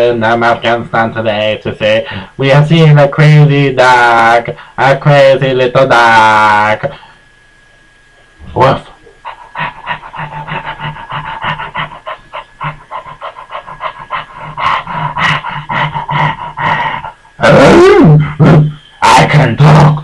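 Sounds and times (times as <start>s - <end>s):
dog panting: 9.2s - 17.2s.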